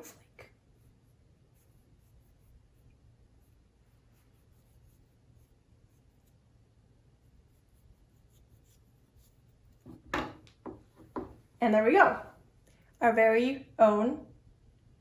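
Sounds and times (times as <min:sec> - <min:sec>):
knife scratching potato: 0:00.1 - 0:10.0.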